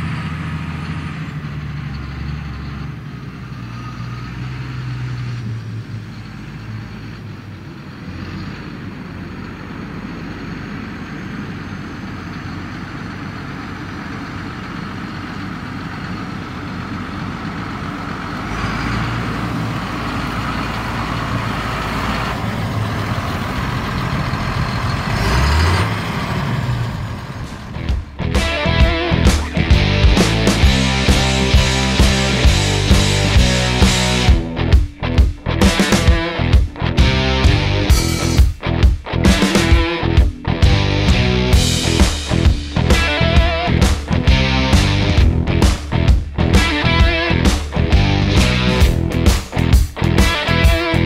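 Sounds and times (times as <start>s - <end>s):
tractor diesel engine running: 0.0s - 51.0s
rock music: 27.6s - 51.0s.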